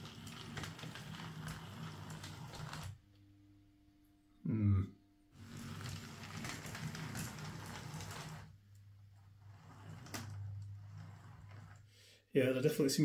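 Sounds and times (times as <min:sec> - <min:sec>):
low steady hum: 0:03.0 - 0:05.4.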